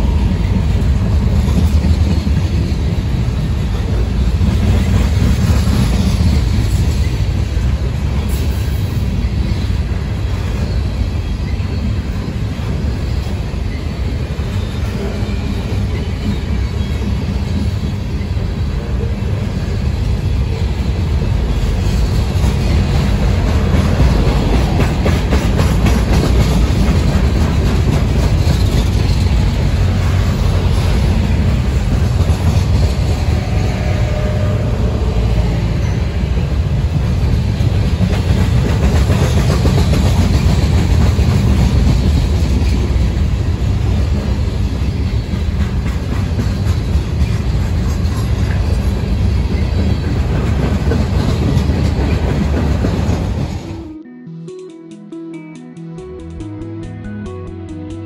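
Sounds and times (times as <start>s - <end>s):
train wheels rumbling on rails: 0.0s - 53.9s
wheels clicking over rail joints: 21.2s - 33.6s, 37.0s - 53.6s.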